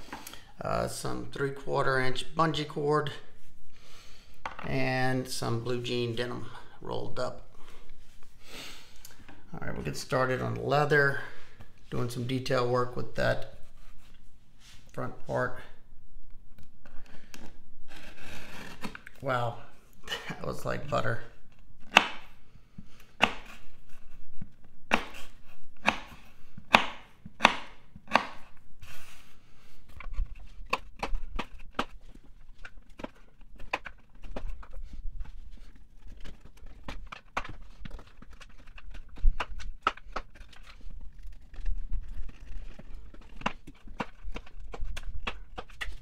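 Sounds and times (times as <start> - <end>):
knife chopping leather on board: 21.9 - 22.3, 23.2 - 23.6, 24.9 - 28.5
blade clicking through plastic tubing: 36.3 - 46.0.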